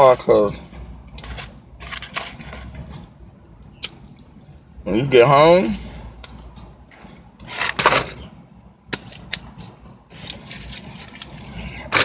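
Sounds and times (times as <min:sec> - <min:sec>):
low steady hum: 0:00.0 - 0:12.0
rustle: 0:09.0 - 0:12.0.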